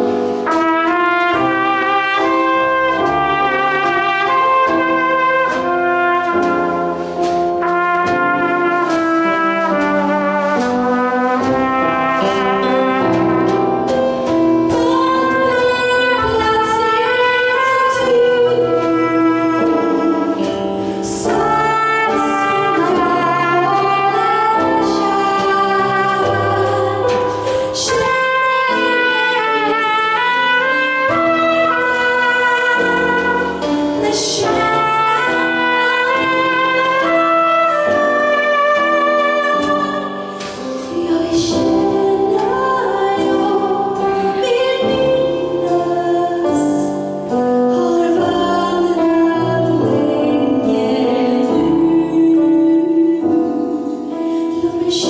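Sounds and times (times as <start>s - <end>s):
drums: 0.0s - 38.8s
piano: 0.0s - 55.0s
trumpet: 0.0s - 55.0s
woman singing: 14.5s - 55.0s.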